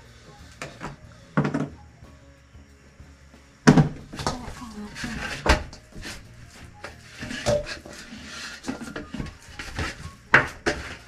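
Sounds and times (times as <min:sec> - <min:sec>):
dough kneaded in metal bowl: 0:03.7 - 0:11.0.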